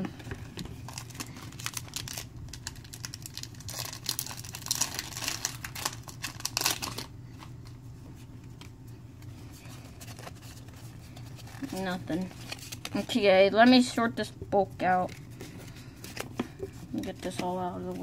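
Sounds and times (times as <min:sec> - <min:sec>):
low steady hum: 0:00.0 - 0:18.0
card packs crinkling: 0:00.2 - 0:07.7, 0:09.6 - 0:13.3.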